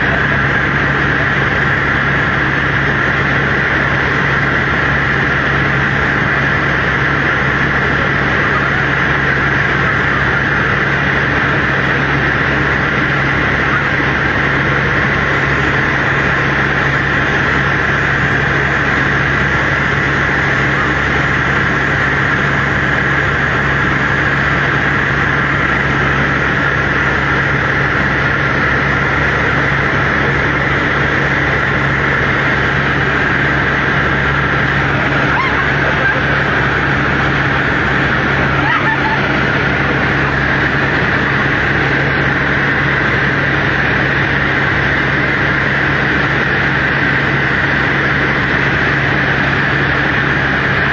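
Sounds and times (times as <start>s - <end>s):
helicopter engine and rotor drone: 0.0s - 50.9s.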